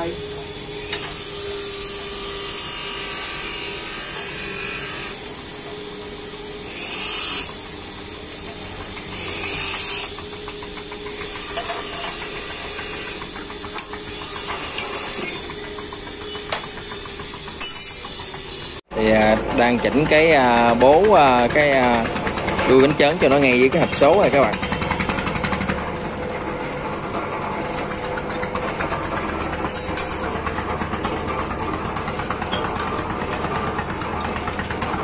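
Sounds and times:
workshop machine hum: 0.0 - 35.0.

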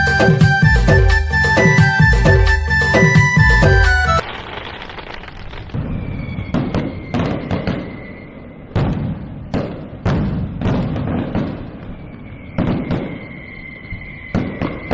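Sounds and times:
sharp bangs and thuds: 3.7 - 8.0, 8.8 - 13.3
thin whistle-like tone: 5.8 - 8.8, 11.9 - 14.9.

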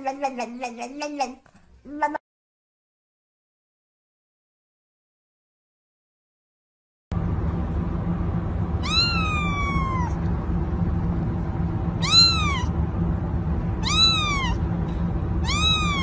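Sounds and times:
low background hum: 0.0 - 2.2, 7.1 - 16.0
kitten meowing: 8.8 - 10.2, 12.0 - 12.7, 13.8 - 14.6, 15.4 - 16.0.

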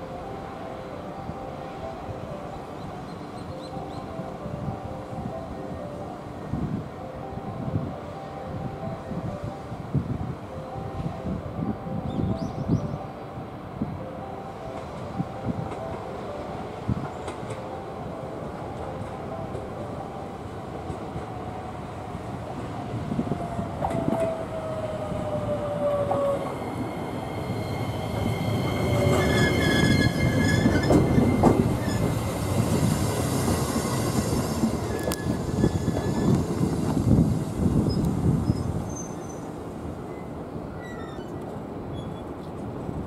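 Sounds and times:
electric train braking whine: 23.8 - 39.4
brake squeal: 40.2 - 42.3.

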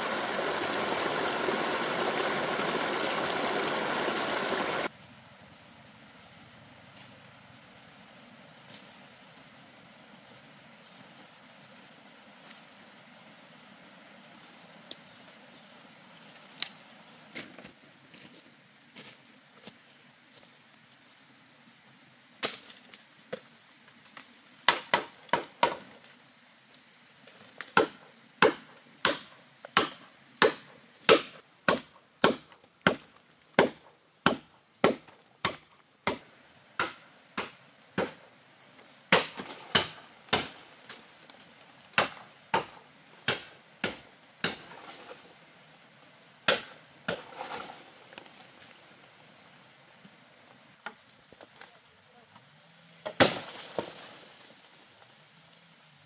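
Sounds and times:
machete chopping bamboo: 24.7 - 25.9, 27.6 - 38.2, 39.1 - 41.0, 41.9 - 44.8, 46.4 - 47.5, 53.0 - 53.9.

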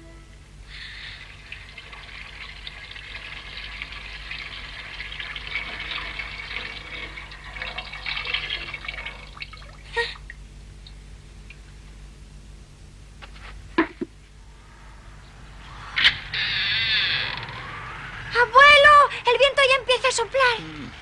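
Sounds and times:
milk pouring into a cauldron: 0.8 - 11.7.

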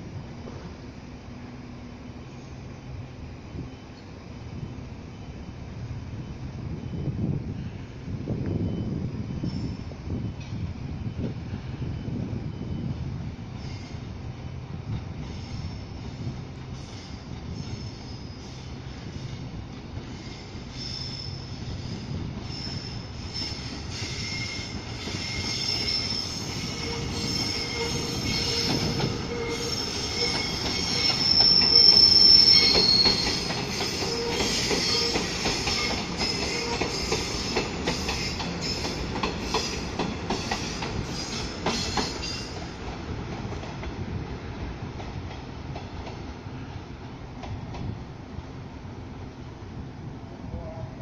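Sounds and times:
train wheels squealing: 2.0 - 42.8.

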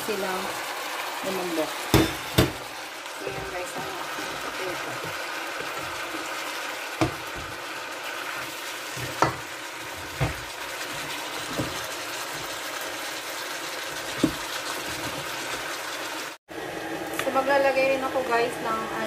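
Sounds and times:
food sizzling in a pan: 0.0 - 16.4
spatula knocking against pan: 7.0 - 7.5, 9.0 - 9.5, 10.2 - 10.5.

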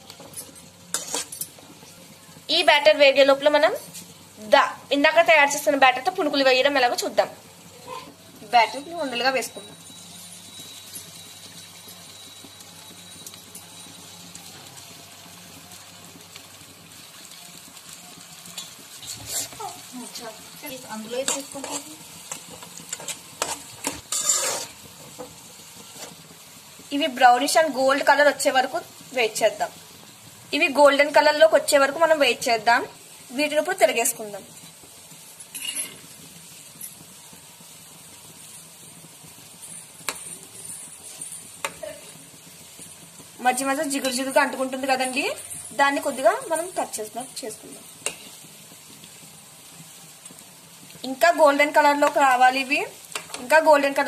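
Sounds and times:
oil sizzling and crackling: 0.0 - 54.0
spoon scraping pan: 0.2 - 1.7, 18.5 - 19.9, 21.1 - 26.4
spoon clinking on pan: 35.4 - 36.1.

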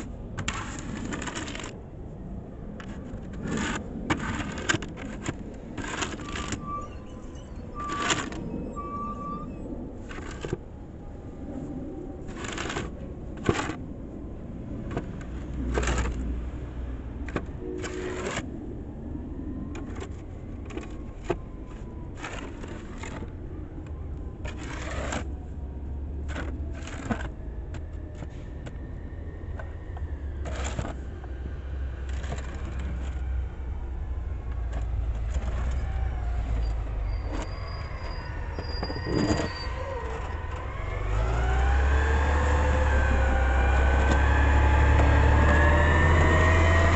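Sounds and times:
plastic shovel scraping concrete: 0.0 - 1.8, 2.8 - 6.8, 7.8 - 8.4, 10.0 - 10.6, 12.2 - 13.8, 14.9 - 16.3, 17.3 - 18.5, 19.8 - 23.3, 24.4 - 25.3, 26.2 - 28.4, 30.4 - 31.1, 32.0 - 33.2, 34.8 - 36.6, 38.8 - 40.6.

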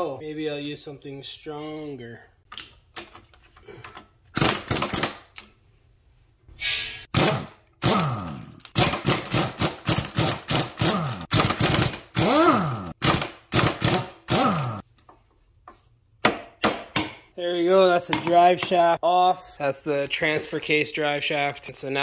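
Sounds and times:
air impact wrench hammering: 6.7 - 14.8.

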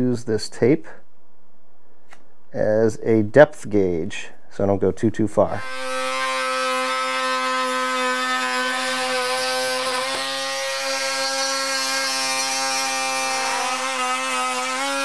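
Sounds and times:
oscillating tool cutting wood: 5.6 - 15.0.

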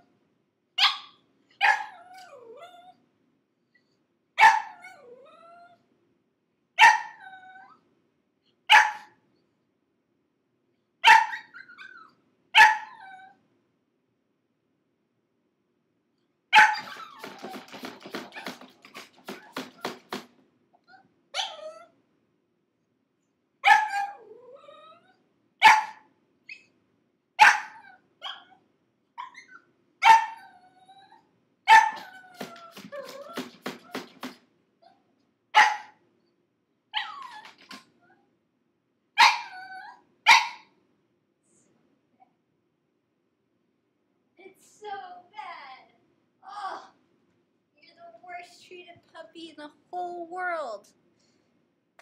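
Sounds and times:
puppy barking and yelping: 0.8 - 3.0, 4.4 - 5.8, 6.8 - 7.8, 8.7 - 9.2, 11.0 - 13.4, 16.6 - 20.0, 20.8 - 21.9, 23.6 - 26.8, 27.4 - 28.6, 29.2 - 34.0, 35.6 - 36.0, 36.9 - 38.2, 39.2 - 40.7
puppy whining: 1.8 - 3.0, 4.8 - 5.8, 7.1 - 7.8, 11.3 - 12.2, 16.6 - 18.6, 20.8 - 22.0, 23.7 - 25.2, 29.2 - 34.0, 37.0 - 38.3, 39.2 - 40.0.

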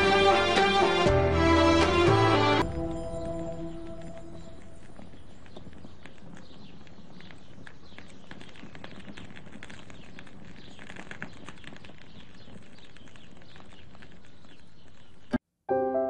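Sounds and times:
rustles: 2.6 - 15.4.

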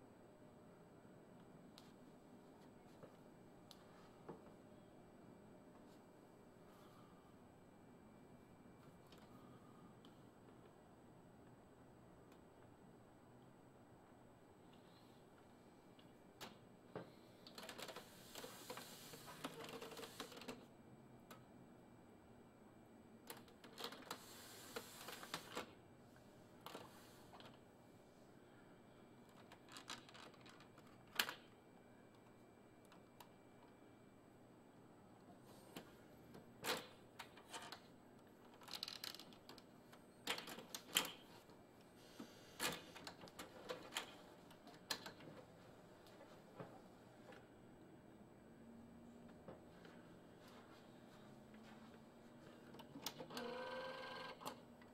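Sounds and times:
printer mechanism clicks and clunks: 42.6 - 45.4, 52.7 - 54.9
printer whirring: 52.7 - 54.6.

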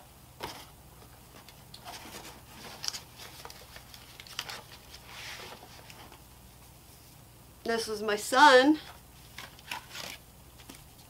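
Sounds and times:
papers and cardboard rustling: 0.4 - 6.2, 8.8 - 11.0.

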